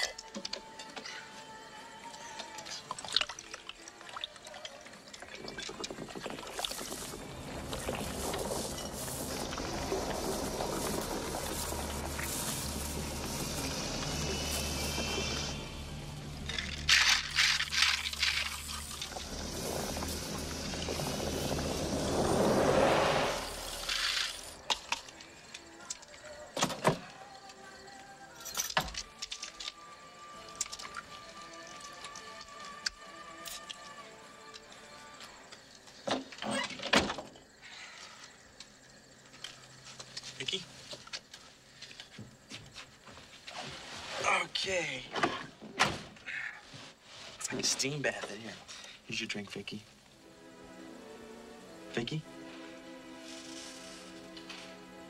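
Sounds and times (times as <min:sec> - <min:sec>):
quiet film score: 0:00.0 - 0:55.0
rustling noise: 0:06.7 - 0:15.5, 0:39.6 - 0:44.5, 0:46.6 - 0:48.6, 0:52.6 - 0:54.9
rushing noise: 0:07.1 - 0:16.9, 0:17.6 - 0:24.6
liquor pouring into plastic cups: 0:30.5 - 0:32.6.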